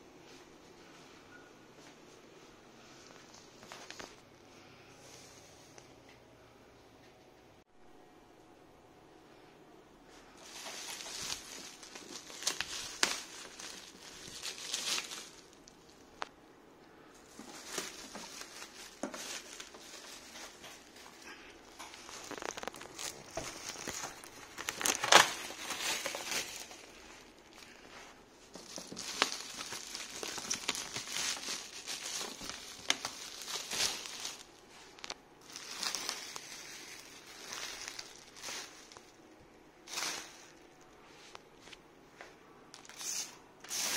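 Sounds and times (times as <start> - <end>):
plastic wrap crinkling: 3.0 - 4.3, 10.1 - 16.3, 17.1 - 41.8.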